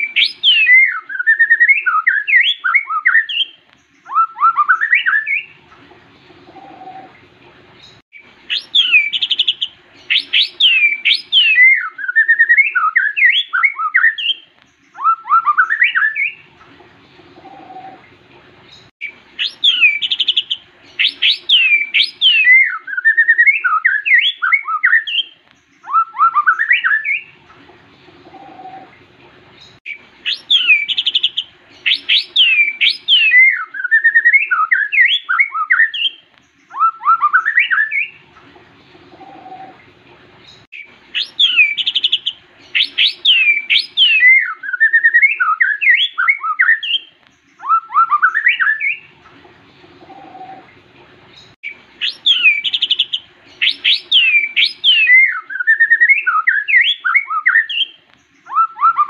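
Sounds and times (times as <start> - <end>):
bird singing whistles and warbles: 0.0 - 7.2, 7.8 - 18.1, 18.7 - 29.0, 29.6 - 49.2, 49.8 - 59.0.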